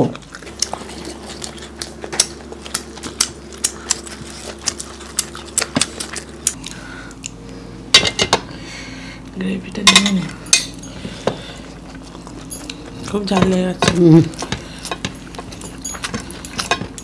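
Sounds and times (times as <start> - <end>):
eating by hand clicks and smacks: 0.0 - 7.4, 11.2 - 17.0.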